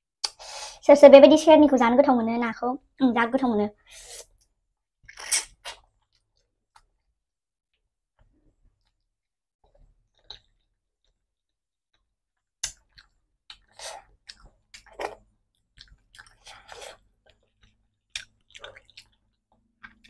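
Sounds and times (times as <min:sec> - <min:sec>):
wet chewing clicks: 0:12.0 - 0:20.0.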